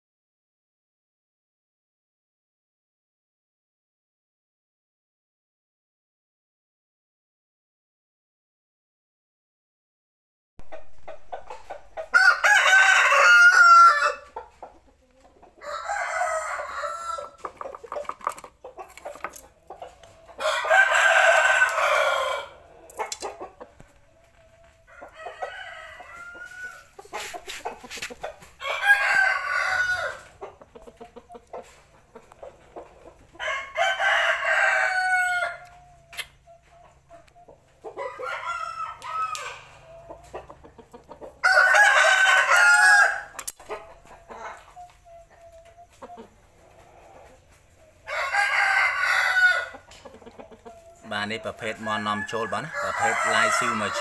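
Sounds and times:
rooster crowing: 12.1s - 14.3s, 15.6s - 17.4s, 20.4s - 22.7s, 24.6s - 27.6s, 28.6s - 30.3s, 33.4s - 35.8s, 38.0s - 40.1s, 41.4s - 43.5s, 48.0s - 49.9s, 51.0s - 54.0s
soft rooster calls: 15.6s - 17.4s, 20.2s - 23.0s, 24.2s - 30.3s, 33.4s - 37.3s, 38.0s - 40.1s, 41.4s - 46.0s, 48.0s - 49.8s, 50.8s - 54.0s.

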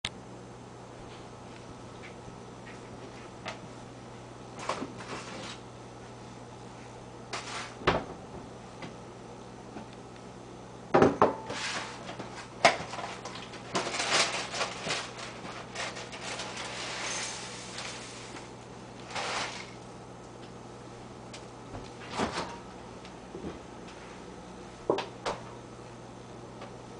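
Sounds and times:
cereal box rustling: 12.9s - 19.8s
dry cereal pouring into bowl: 16.1s - 18.4s, 19.0s - 19.8s.

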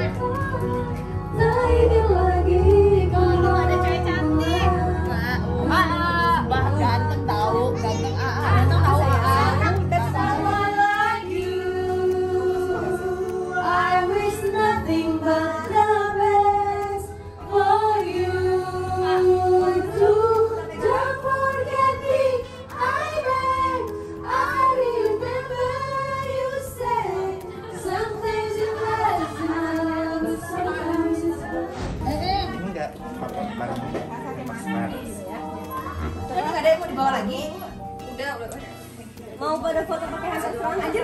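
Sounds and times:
woman singing into a microphone: 0.0s - 7.3s, 8.4s - 32.0s
backing track: 0.0s - 41.0s.

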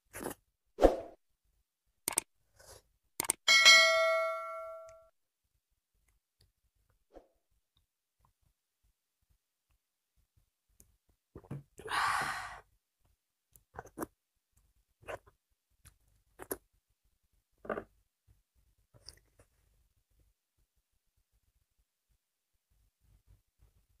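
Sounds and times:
person exhaling loudly: 11.8s - 12.6s
person swallowing a drink: 17.6s - 17.9s.

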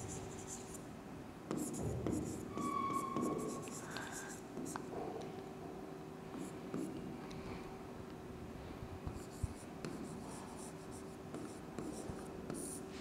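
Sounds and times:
faint steady hum: 0.0s - 13.0s
pen scratching on paper: 1.5s - 4.8s, 9.2s - 12.8s.

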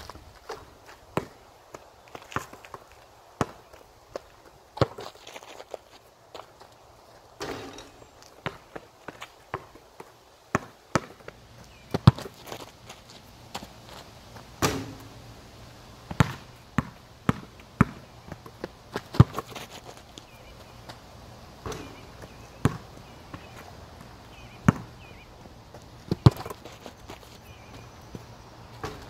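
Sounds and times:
basketball bouncing on concrete: 4.8s - 5.1s, 7.4s - 9.8s, 10.5s - 12.7s, 14.6s - 15.2s, 16.1s - 20.0s, 21.6s - 29.0s
footsteps on concrete: 8.0s - 14.5s.

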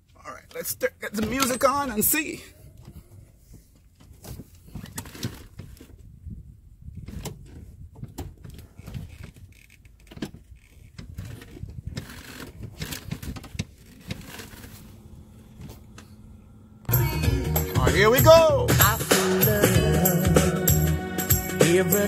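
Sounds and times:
low rumble: 14.5s - 19.0s.

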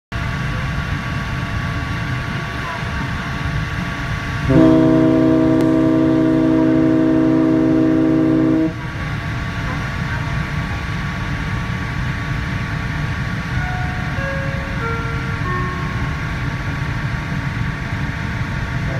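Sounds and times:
ship whistle blast: 4.5s - 8.8s.

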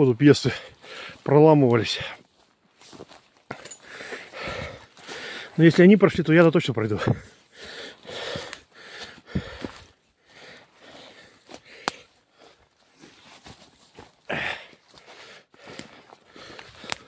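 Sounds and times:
footsteps walking uphill: 0.0s - 17.0s
heavy breathing: 0.5s - 1.3s, 3.5s - 5.6s, 7.0s - 13.2s, 14.0s - 17.0s.

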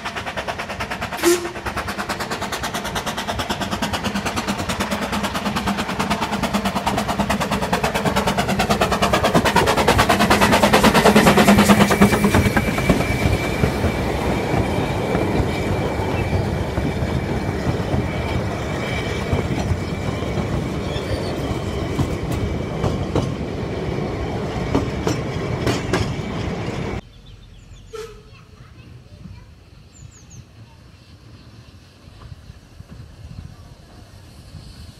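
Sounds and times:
wheels clicking on rails: 0.0s - 27.0s
steam train rumbling: 0.0s - 34.9s.

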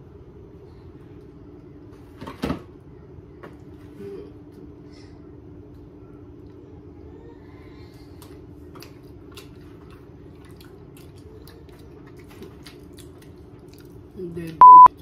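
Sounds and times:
people chewing cookie: 5.7s - 14.6s.

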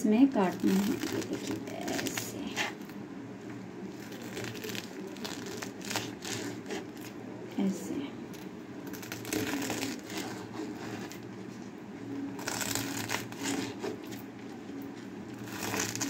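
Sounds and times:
knife slicing on plastic cutting board: 12.8s - 14.2s.

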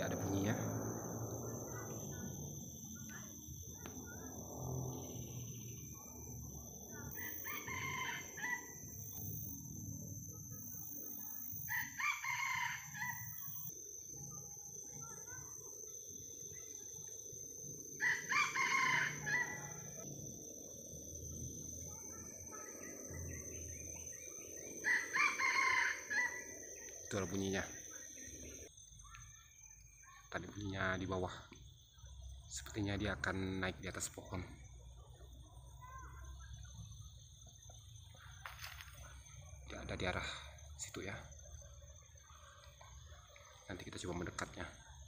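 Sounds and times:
low forest background hum: 0.0s - 45.0s
rooster crowing: 7.1s - 9.2s, 11.6s - 13.7s, 18.0s - 20.1s, 24.8s - 26.6s.

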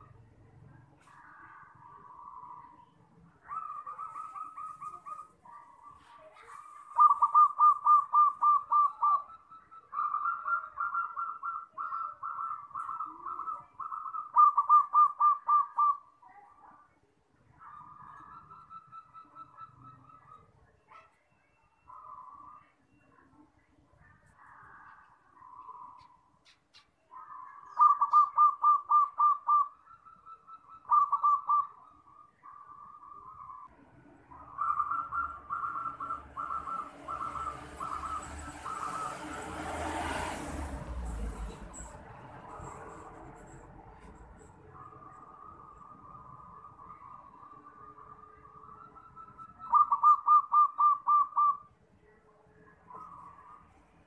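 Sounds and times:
dove cooing: 1.0s - 16.1s, 27.1s - 51.7s.

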